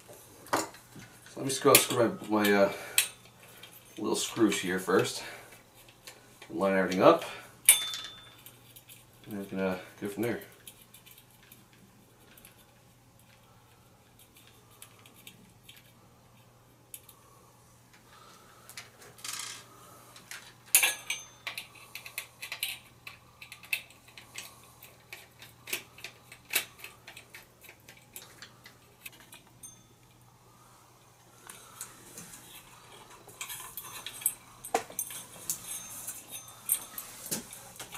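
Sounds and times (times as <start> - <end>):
small metallic clicks and rattles: 20.2 - 30.2, 31.4 - 37.9.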